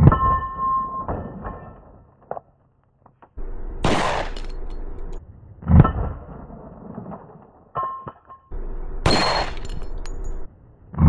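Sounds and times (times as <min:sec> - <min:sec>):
pistol shot: 0:03.4 - 0:05.2, 0:08.6 - 0:10.4
steel plate ringing: 0:07.9 - 0:10.5.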